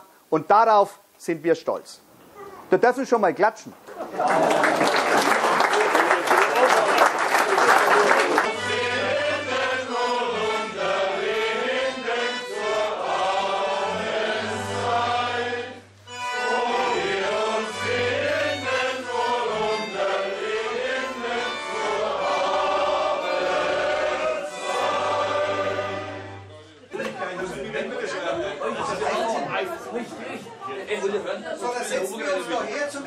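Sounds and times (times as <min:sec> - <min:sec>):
button concertinas: 0:07.9 - 0:27.2.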